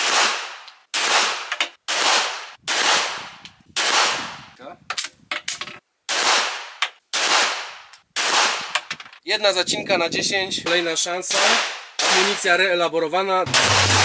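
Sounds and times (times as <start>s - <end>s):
pistol shots: 0.0s - 4.4s, 6.1s - 8.7s, 10.7s - 12.5s.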